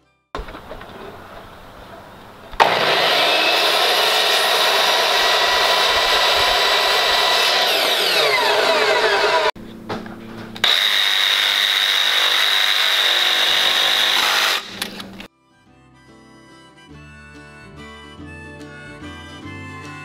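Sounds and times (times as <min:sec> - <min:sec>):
miter saw cutting wood: 0:02.5 - 0:09.6, 0:10.6 - 0:15.3
oscillating multi-tool buzzing: 0:02.6 - 0:09.6, 0:10.6 - 0:15.2.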